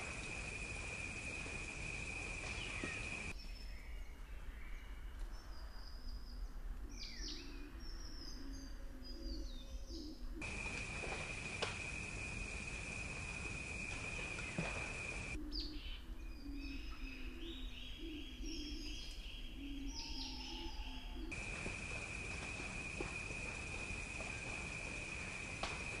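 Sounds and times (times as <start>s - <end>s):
birds chirping and calling: 0.0s - 3.3s.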